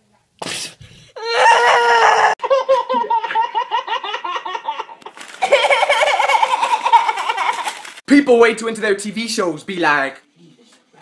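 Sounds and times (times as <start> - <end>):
people laughing: 2.4 - 7.8.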